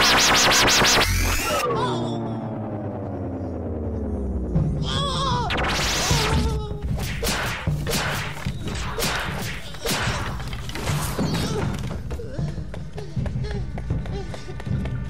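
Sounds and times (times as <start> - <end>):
sharp noisy hits: 0.0 - 1.6, 5.5 - 11.6
loud noisy burst: 0.0 - 1.8, 5.5 - 11.1.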